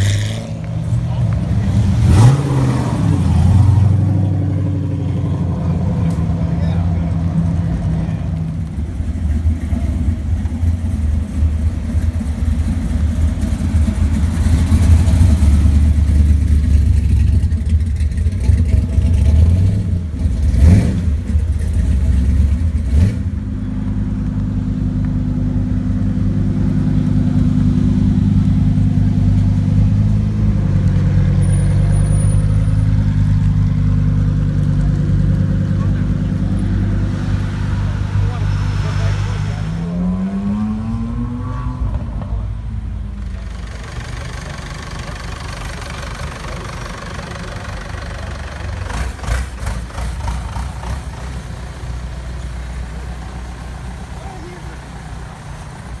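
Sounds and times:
engine low drone: 0.0s - 56.0s
car engine revving hard: 1.6s - 6.2s, 19.0s - 23.3s, 35.6s - 42.3s.

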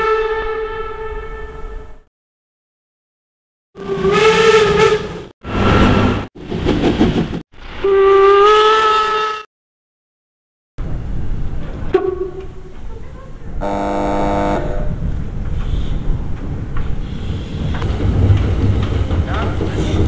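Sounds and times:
steam whistle blasts: 7.8s - 9.5s.

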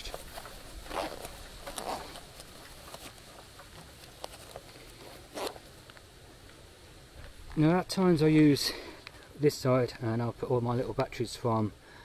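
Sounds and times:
fabric pouch rustling: 0.0s - 6.0s.

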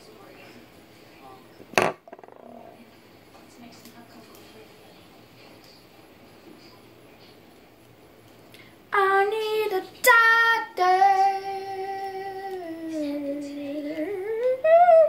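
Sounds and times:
girl singing unaccompanied: 8.9s - 15.0s.

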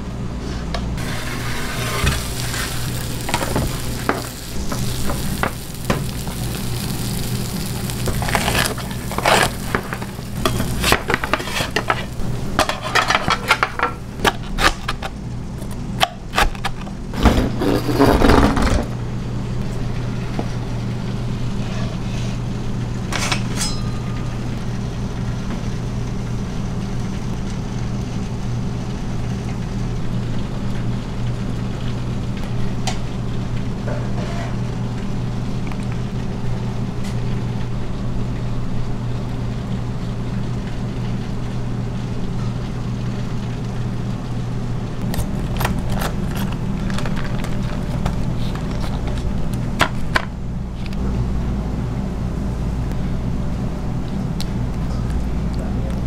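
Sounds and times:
low machine hum: 0.0s - 56.0s
metal pans clattering and scraping: 8.3s - 15.1s, 33.8s - 34.6s.

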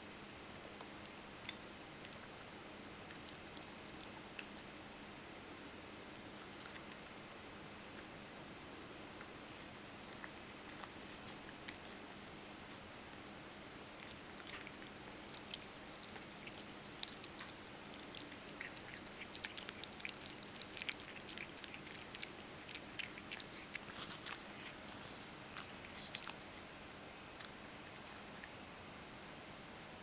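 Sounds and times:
cat crunching dry kibble: 9.2s - 12.1s, 14.0s - 26.7s.

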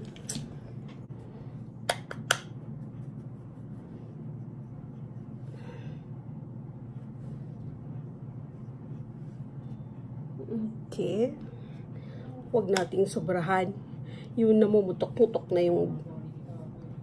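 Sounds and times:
steady low hum: 0.0s - 17.0s
soft breath: 5.4s - 6.4s, 11.4s - 12.5s.

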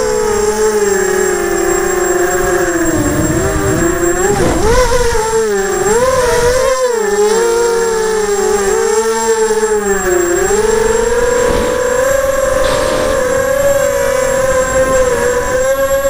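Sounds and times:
drone motors whining: 0.0s - 16.0s
low rush of wind: 0.9s - 7.1s.

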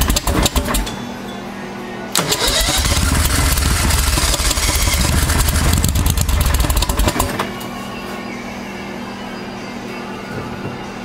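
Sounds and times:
engine running rough: 2.4s - 7.4s.

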